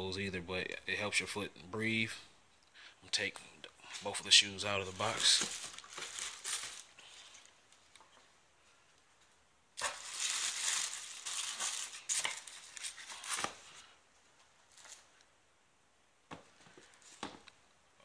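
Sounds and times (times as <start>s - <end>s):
tissue paper rustling: 4.8s - 7.6s, 9.8s - 14.0s, 14.6s - 15.2s.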